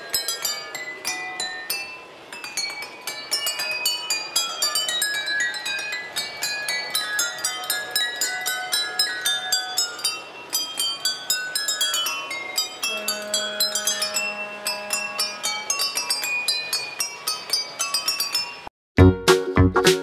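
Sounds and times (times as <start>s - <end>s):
wine glasses clinking a melody: 0.0s - 18.7s.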